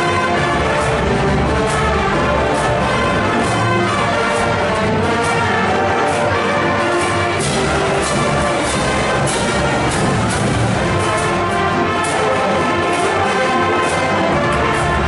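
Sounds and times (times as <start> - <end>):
brass band playing: 0.0 - 15.0.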